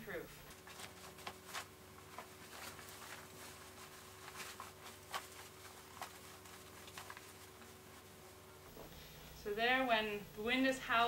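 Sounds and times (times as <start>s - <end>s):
canvas jacket rustling: 0.5s - 8.8s.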